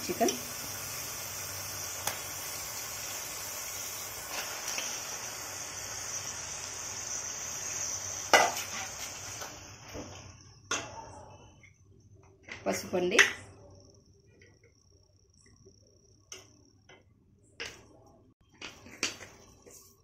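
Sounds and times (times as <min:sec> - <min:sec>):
oil sizzling in pot: 0:00.0 - 0:10.9.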